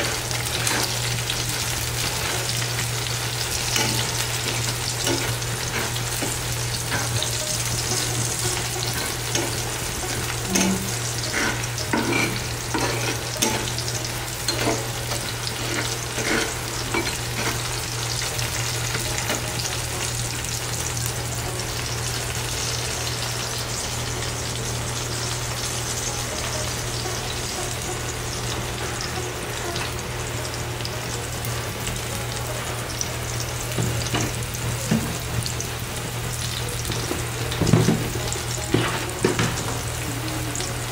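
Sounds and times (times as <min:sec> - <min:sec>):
spatula scraping and stirring: 0:00.0 - 0:19.7
food sizzling in oil in a frying pan: 0:00.0 - 0:40.9.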